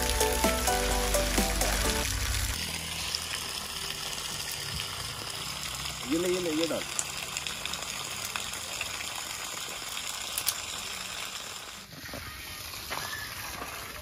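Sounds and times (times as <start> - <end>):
campfire hissing: 0.0 - 14.0
fire crackles and pops: 6.9 - 11.9.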